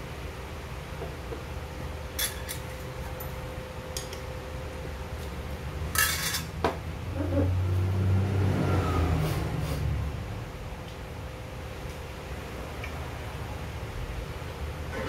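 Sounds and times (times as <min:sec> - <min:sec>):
utensils clinking on metal bowl: 0:06.0 - 0:06.5.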